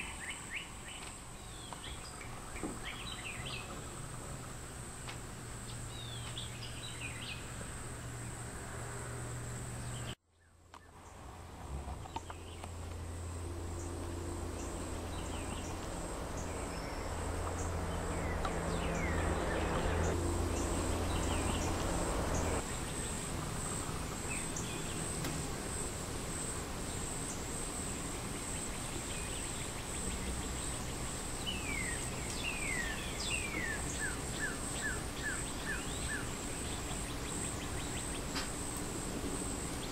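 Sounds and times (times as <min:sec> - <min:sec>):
high-pitched insect chorus: 0:12.2 - 0:39.9.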